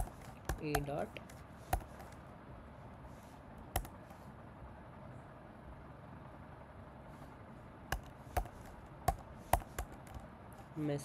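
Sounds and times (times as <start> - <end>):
computer keyboard keystrokes: 3.8 - 4.0.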